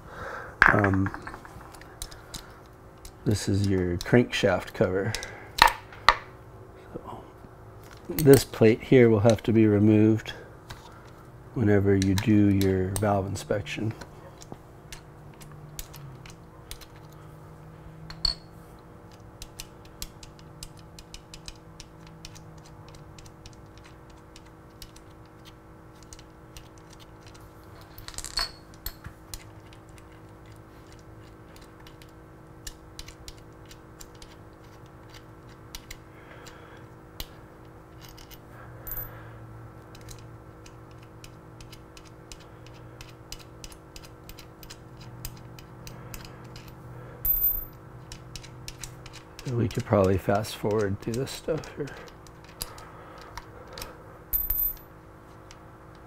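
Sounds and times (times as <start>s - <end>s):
steady low hum: 0.0s - 56.0s
small metal clinks: 18.1s - 18.6s, 38.0s - 39.2s, 46.1s - 49.5s, 53.7s - 54.9s.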